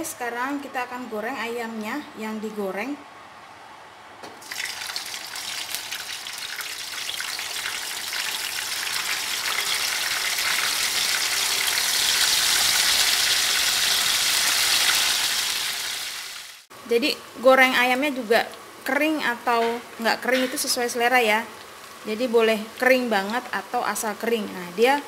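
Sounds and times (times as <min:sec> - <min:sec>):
chicken sizzling in hot oil: 0:04.4 - 0:16.7.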